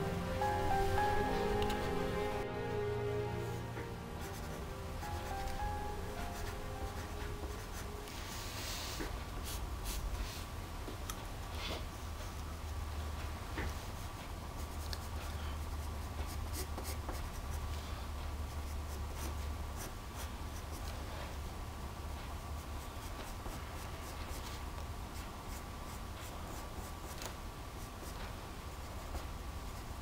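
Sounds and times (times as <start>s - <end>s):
steady low hum: 0.0s - 16.6s
pencil scratching on paper: 4.2s - 7.9s, 13.9s - 17.6s, 18.4s - 21.0s, 22.6s - 30.0s.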